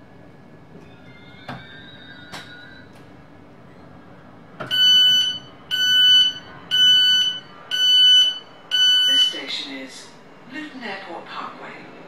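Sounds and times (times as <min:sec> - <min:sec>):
train carriage hum: 0:00.0 - 0:12.0
train door warning beeps: 0:04.6 - 0:09.4.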